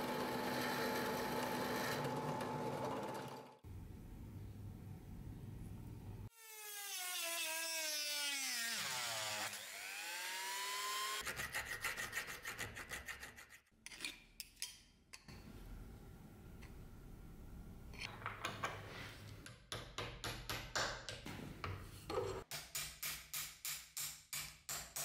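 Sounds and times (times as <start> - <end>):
small power tool motor: 0.0 - 3.6, 6.3 - 11.2
hacksaw cutting metal: 11.2 - 14.0.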